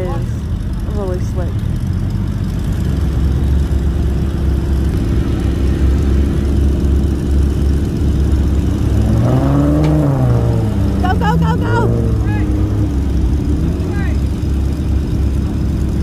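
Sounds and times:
engine droning under load: 0.0s - 16.0s.

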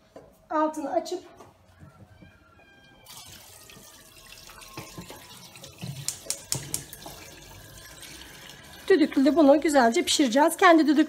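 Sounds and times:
water pouring into metal pot: 3.0s - 10.6s.

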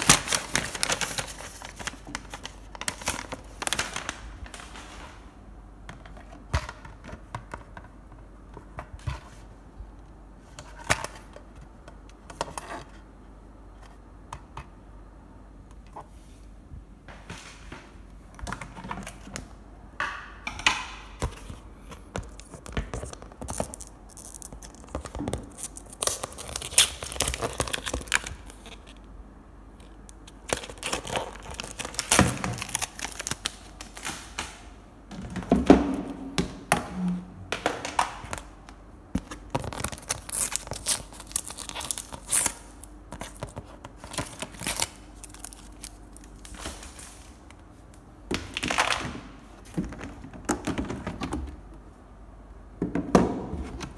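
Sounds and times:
paper labels peeling and tearing: 22.3s - 29.0s, 39.5s - 46.8s
plastic boxes clicking and knocking: 34.0s - 38.5s, 48.3s - 51.6s.

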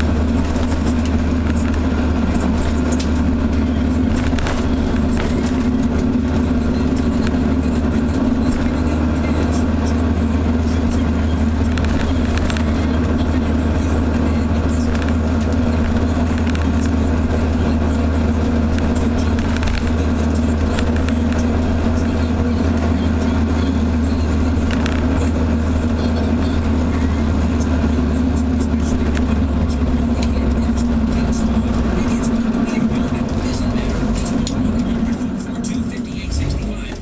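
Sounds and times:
car engine cruising: 0.0s - 37.0s
car exhaust drone: 0.0s - 37.0s
road noise: 0.0s - 37.0s.

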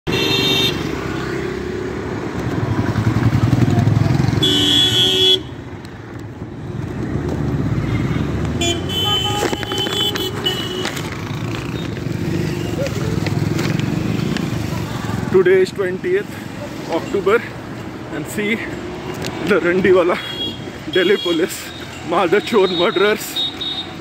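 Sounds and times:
road traffic engines: 0.0s - 24.0s
vehicle horns honking: 0.1s - 0.9s, 4.3s - 5.6s, 7.8s - 11.1s, 20.1s - 24.0s.

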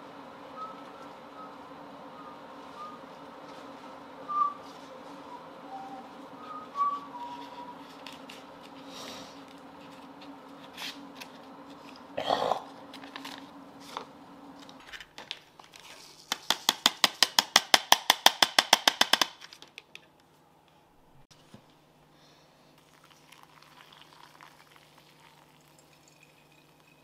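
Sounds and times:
low steady hum: 0.0s - 16.3s.

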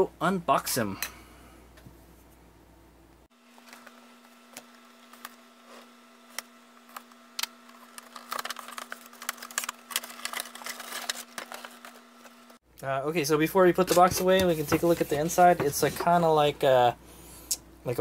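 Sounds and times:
cardboard and plastic crinkling: 7.6s - 12.6s.

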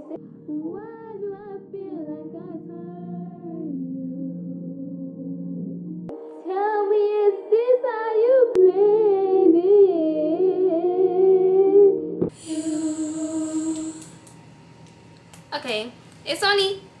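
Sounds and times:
woman singing slow melody: 0.0s - 14.4s.

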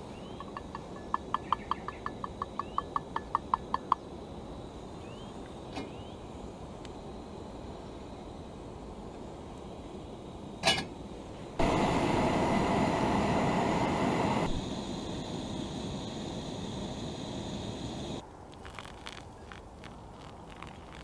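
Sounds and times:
gas stove burner hissing: 6.9s - 18.2s.

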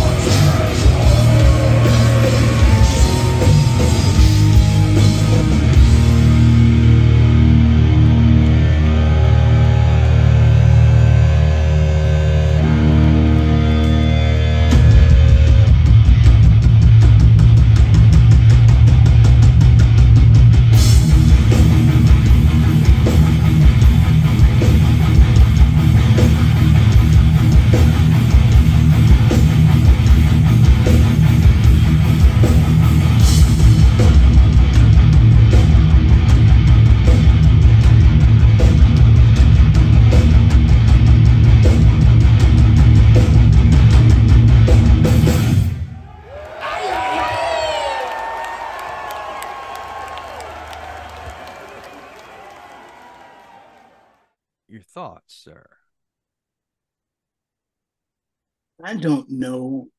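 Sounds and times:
driving drum beat: 0.0s - 6.9s, 14.7s - 45.7s
distorted electric guitars: 0.0s - 45.9s.

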